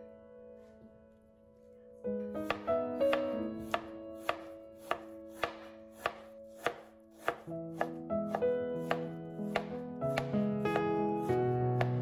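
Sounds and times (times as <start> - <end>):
soft background music: 0.0 - 12.0
knife chopping on cutting board: 2.4 - 10.9, 11.8 - 12.0.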